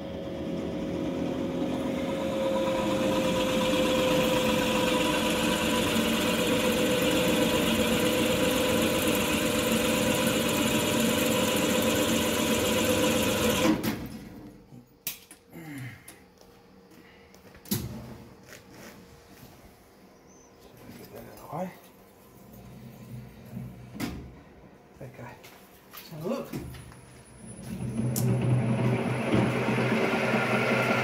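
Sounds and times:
drill press drilling steel: 1.1s - 13.8s, 27.5s - 31.0s.

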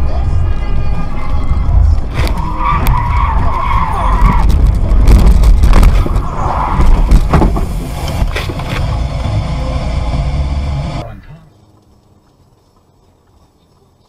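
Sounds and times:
heavy low rumble: 0.0s - 11.5s
car tyres squealing: 2.1s - 5.1s, 5.8s - 11.0s.

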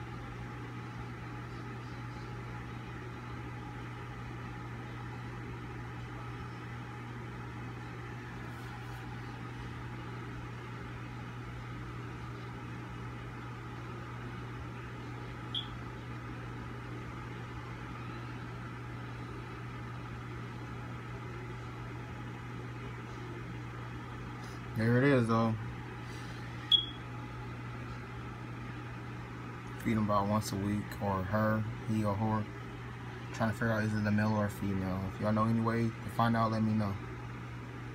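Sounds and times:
low machine hum: 0.0s - 37.9s
short high chirp: 26.7s - 27.0s.

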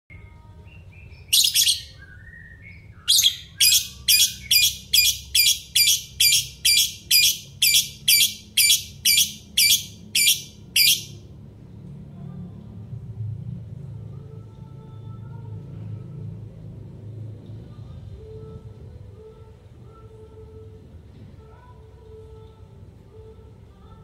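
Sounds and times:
lovebird chirping and calling: 1.0s - 2.0s, 3.0s - 11.2s
loud shrill bird calls: 1.3s - 2.0s, 3.1s - 11.2s.

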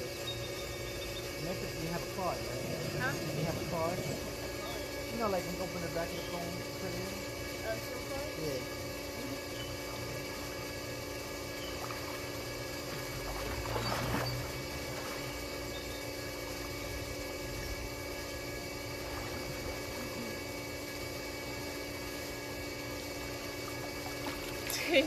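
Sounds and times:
steady machine hum: 0.0s - 25.0s
water splashing: 11.7s - 15.4s.

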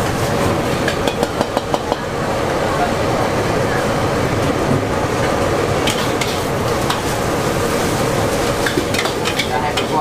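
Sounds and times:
noodles sizzling in a wok: 5.9s - 10.0s.

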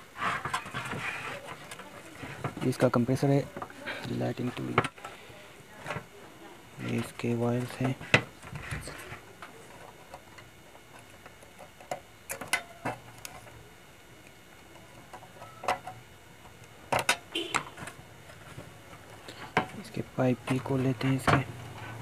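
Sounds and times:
clicks and knocks handling parts: 6.9s - 13.6s, 14.2s - 21.9s.

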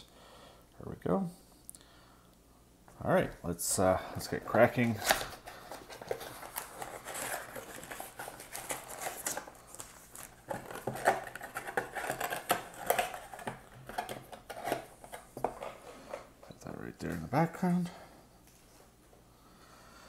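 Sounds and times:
cardboard and wrappers rustling: 4.3s - 16.3s.

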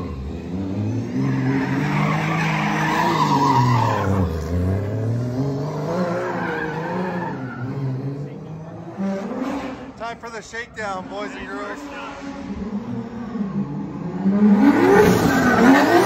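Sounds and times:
car engine revving: 0.0s - 16.0s
tyres squealing on pavement: 1.1s - 4.4s, 6.1s - 7.8s.

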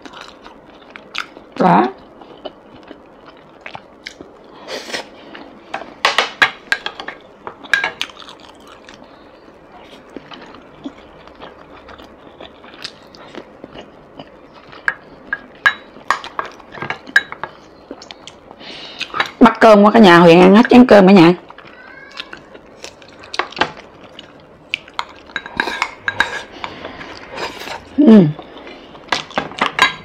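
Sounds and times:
close chewing: 7.6s - 9.2s, 9.8s - 15.0s, 21.4s - 29.7s.

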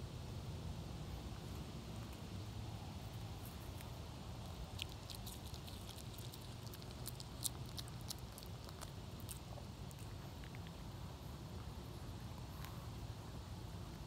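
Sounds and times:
dog chewing with clicks: 3.5s - 10.8s.

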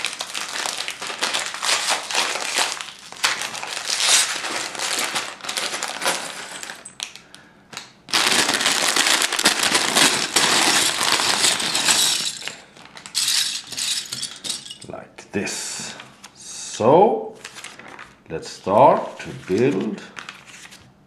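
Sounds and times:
plastic bag crinkling: 0.0s - 14.9s, 17.4s - 18.2s
plastic bricks rattling: 8.2s - 14.9s.

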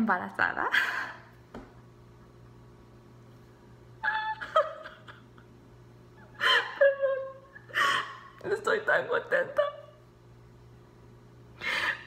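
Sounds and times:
woman sobbing: 4.0s - 5.4s, 6.2s - 8.4s, 11.6s - 12.0s.

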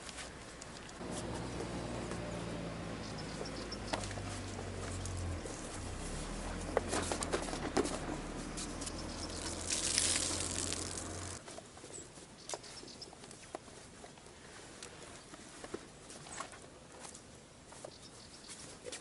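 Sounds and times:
water splashing out: 9.2s - 11.4s.

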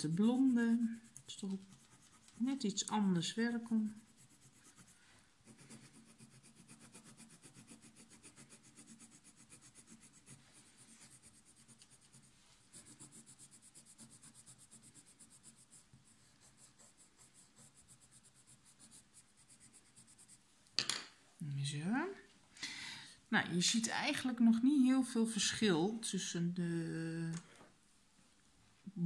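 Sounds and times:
pencil shading on paper: 0.0s - 20.4s.

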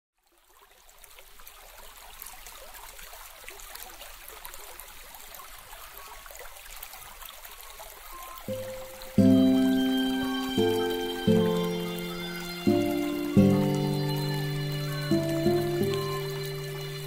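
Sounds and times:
sustained musical notes: 8.5s - 17.0s.

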